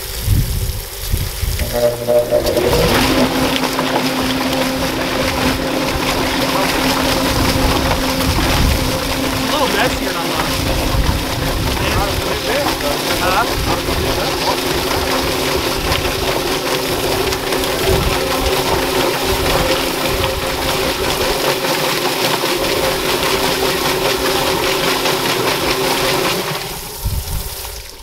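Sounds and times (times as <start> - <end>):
electric motor humming: 1.6 - 25.8
drum swishing chicken in water: 1.6 - 26.8.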